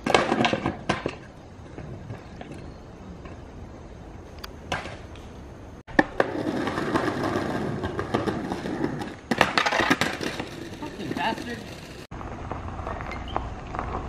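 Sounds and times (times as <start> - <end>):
skateboard wheels rolling on concrete: 0.0 - 14.0
skateboard wooden clack: 5.9 - 14.0.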